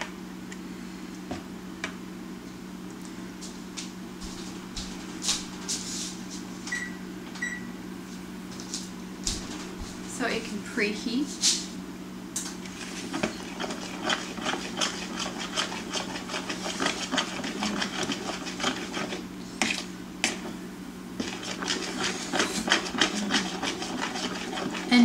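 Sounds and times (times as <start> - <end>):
utensil tapping mixing bowl: 13.1 - 20.5.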